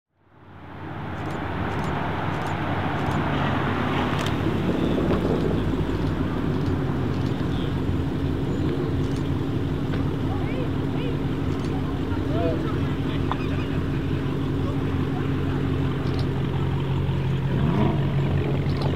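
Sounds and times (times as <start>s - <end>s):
deep car exhaust note: 12.1s - 18.8s.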